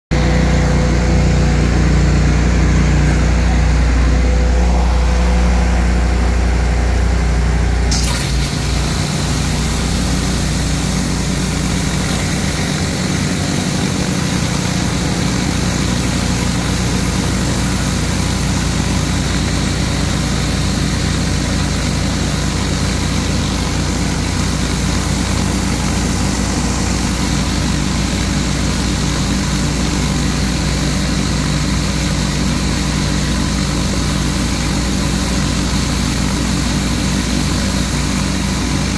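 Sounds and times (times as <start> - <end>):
pressure washer engine running: 0.1 - 38.9
high-pressure spray hissing: 7.9 - 38.9.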